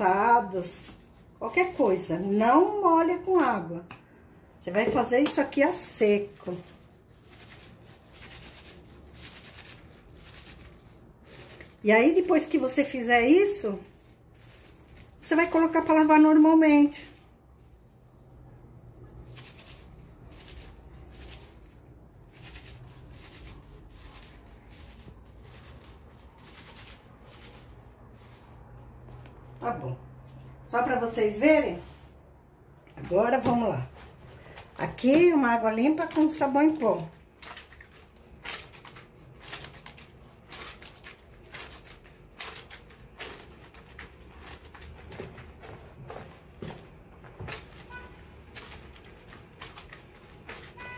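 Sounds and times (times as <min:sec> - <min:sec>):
fabric rubbing on fabric: 0:04.8 - 0:32.4
wet squishes and splashes: 0:37.0 - 0:45.8.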